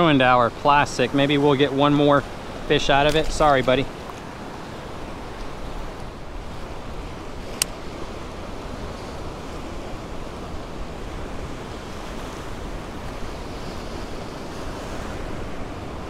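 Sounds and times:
choppy sea water washing: 0.0 - 16.0
sharp click: 7.6 - 7.8.

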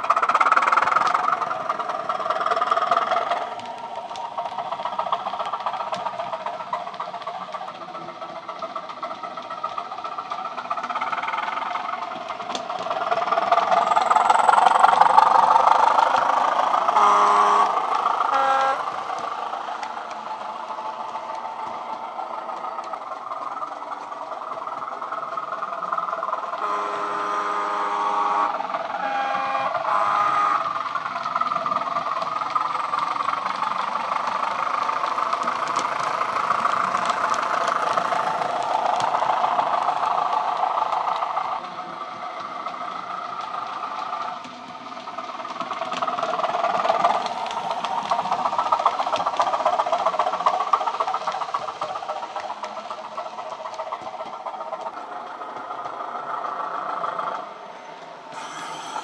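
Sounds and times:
diesel engine through small speaker: 7.8 - 57.6
train horn: 16.9 - 19.0, 26.6 - 30.8, 58.4 - 59.0.

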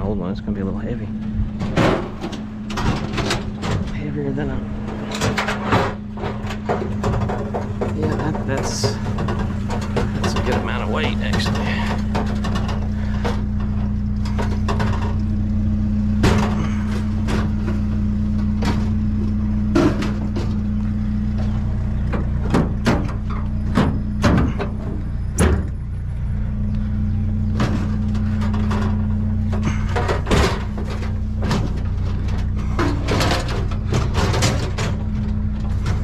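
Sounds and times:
truck engine idling: 0.0 - 36.0
metal cabinet knocks and clanks: 1.5 - 13.4, 21.4 - 25.8, 27.5 - 36.0.

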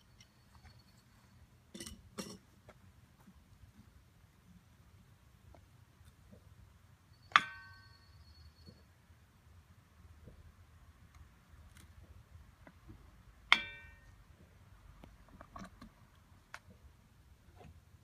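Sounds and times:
metal tool clinking on crucible: 0.0 - 2.5.

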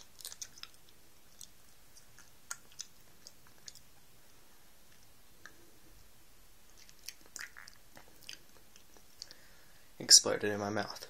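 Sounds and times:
wet mouth clicks chewing: 0.0 - 4.0, 6.7 - 9.4
low hiss: 0.0 - 11.0.

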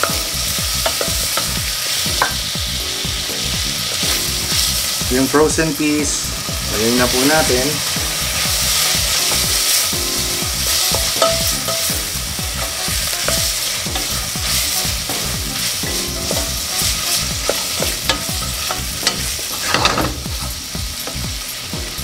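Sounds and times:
vegetables sizzling in oil: 0.0 - 22.0.

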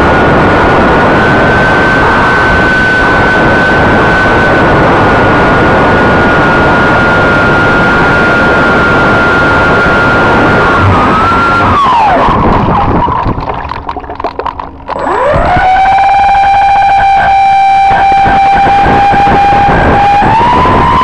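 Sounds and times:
water crackling against hull: 0.0 - 21.0
model aircraft motors whining: 14.7 - 21.0.

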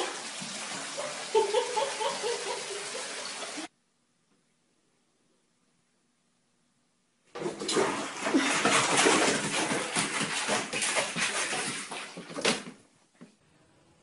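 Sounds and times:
bathwater splashing: 0.0 - 3.7, 7.4 - 12.8.

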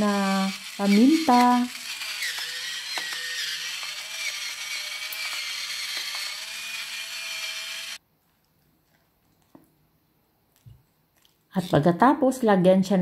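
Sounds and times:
pepper grinder motor whine: 0.0 - 8.0.

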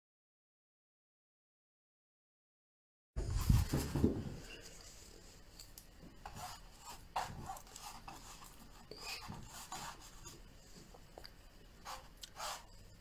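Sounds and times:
brush scraping on canvas: 3.2 - 5.4, 6.2 - 10.9, 11.8 - 12.8.

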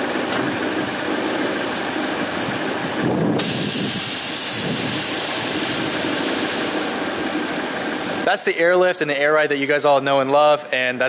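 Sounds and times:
air suspension venting hiss: 3.3 - 7.2.

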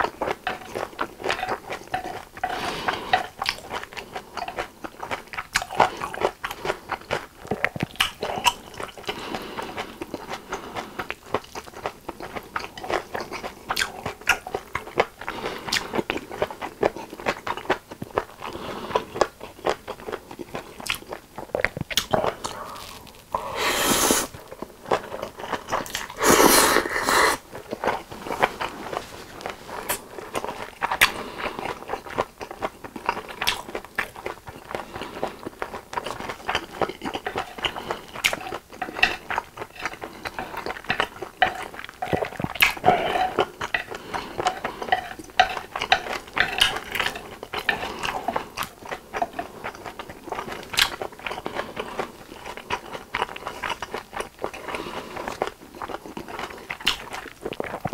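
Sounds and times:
wet chewing with smacking: 0.0 - 23.5, 24.2 - 57.9
noodle slurp: 22.0 - 24.4, 25.0 - 27.5.

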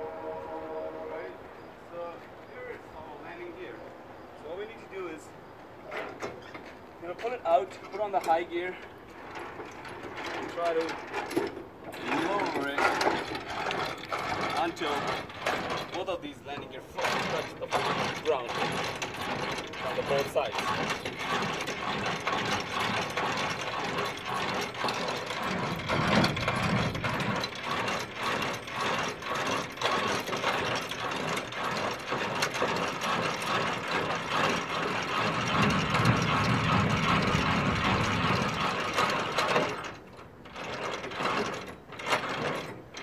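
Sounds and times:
crank gear clicking: 7.8 - 43.0.

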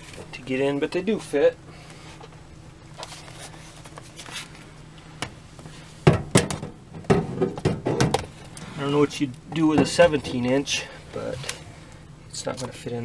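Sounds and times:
low steady hum: 0.0 - 13.0
laptops knocking in metal safe: 6.1 - 8.3.

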